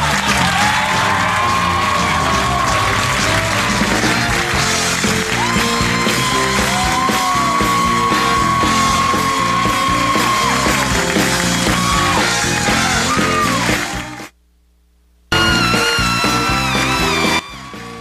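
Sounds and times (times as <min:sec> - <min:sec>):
drum kit beat: 0:00.0 - 0:14.3, 0:15.3 - 0:18.0
horn section long notes: 0:15.3 - 0:18.0.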